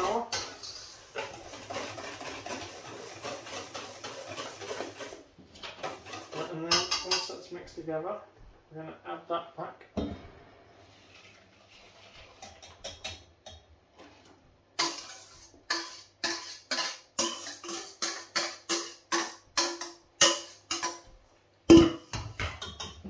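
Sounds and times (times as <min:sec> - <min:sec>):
utensil scraping metal bowl: 0:00.0 - 0:07.5, 0:10.9 - 0:13.3, 0:14.0 - 0:21.1.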